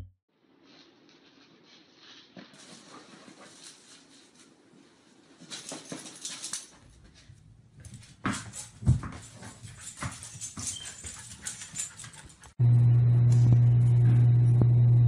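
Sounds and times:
rustling and scuffling: 0.6s - 12.6s.

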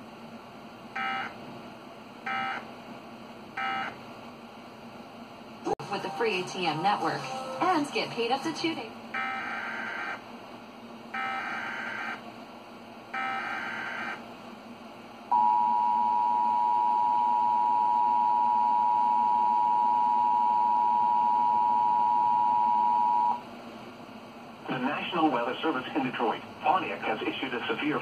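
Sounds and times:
two-tone attention signal: 3.6s - 3.9s.

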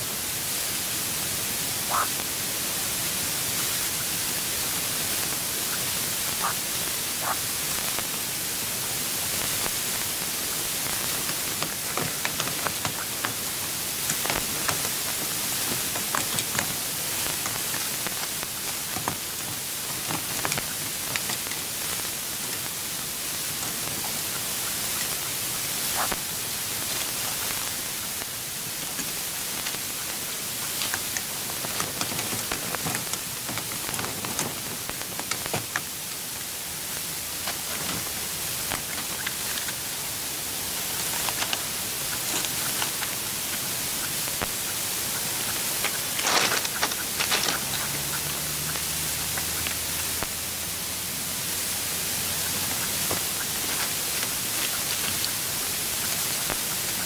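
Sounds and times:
steady hiss: 0.0s - 57.0s.

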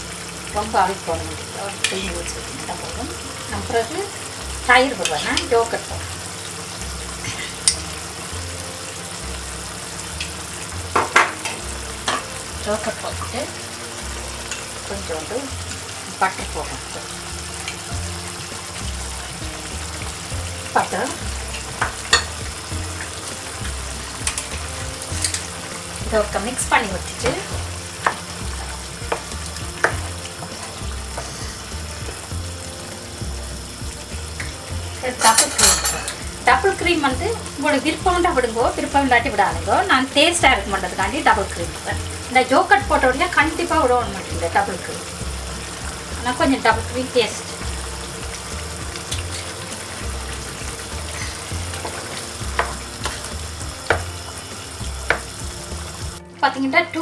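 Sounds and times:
curry simmering in a pan: 0.0s - 56.2s
spoon knocking against pan: 10.9s - 12.3s, 51.8s - 53.2s, 55.1s - 55.3s.

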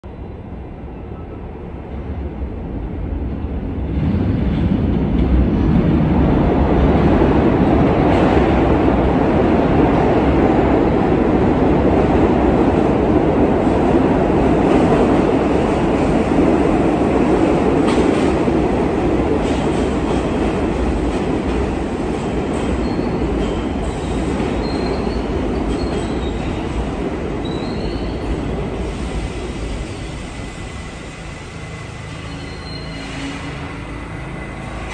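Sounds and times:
subway train rumbling on rails: 0.0s - 34.9s
high wheel squeals: 22.8s - 26.6s, 27.4s - 28.4s, 31.9s - 34.9s.

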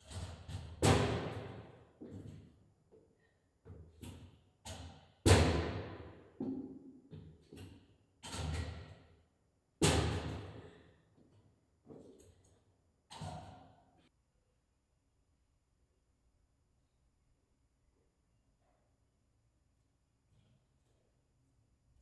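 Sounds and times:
sharp knocks and thuds with echo: 0.4s - 2.4s, 5.2s - 7.6s.

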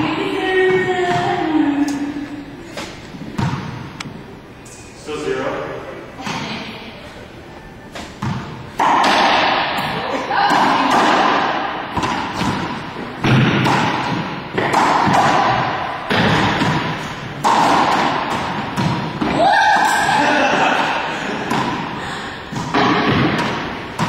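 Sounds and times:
ball smacking off racquets and walls: 8.0s - 24.0s.

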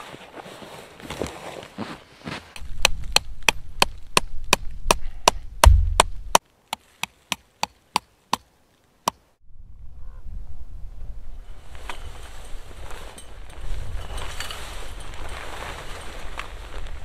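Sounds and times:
hammer knocking tent stakes: 2.8s - 6.2s
deep thud: 5.6s - 6.4s.

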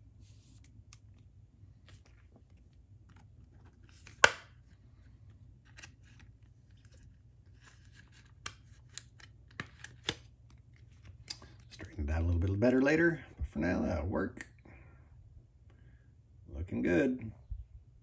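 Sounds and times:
plastic sleeves rustling: 0.2s - 12.3s.

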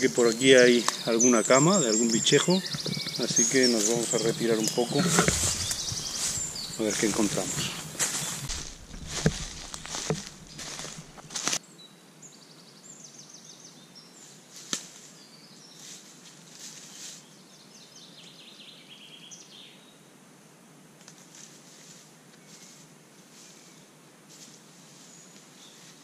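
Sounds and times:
songbird trilling: 0.0s - 9.3s
footsteps on dry leaves: 2.5s - 11.6s, 15.8s - 17.2s.

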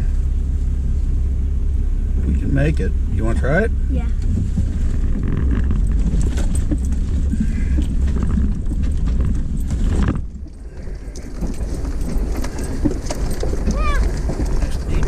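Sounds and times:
low engine rumble: 0.0s - 15.0s
tyres crunching over rock: 4.2s - 15.0s.

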